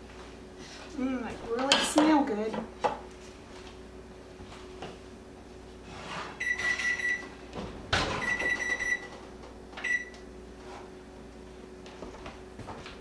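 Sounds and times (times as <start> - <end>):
oven beeper long beep: 6.4 - 7.4, 8.0 - 9.2, 9.8 - 10.3.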